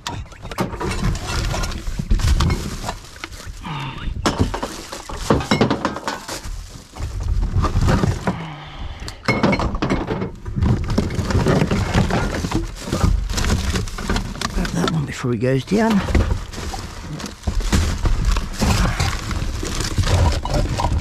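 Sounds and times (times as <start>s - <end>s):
plastic bags rustling: 0.7s - 8.6s, 10.3s - 21.0s
bottles and cans clinking: 4.2s - 6.5s, 9.2s - 10.4s.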